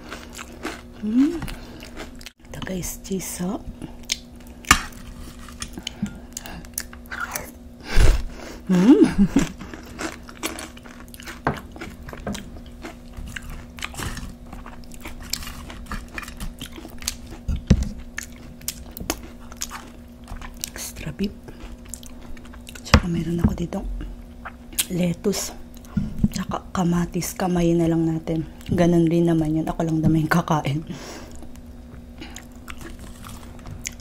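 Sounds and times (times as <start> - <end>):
crunchy chewing of tortilla chips: 0.0 - 2.4, 3.8 - 7.6, 9.2 - 22.9, 31.2 - 34.0.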